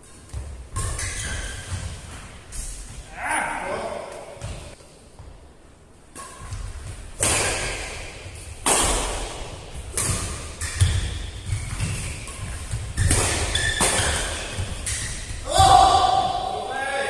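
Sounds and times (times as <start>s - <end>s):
rackets hitting shuttlecock: 6.1s - 16.5s.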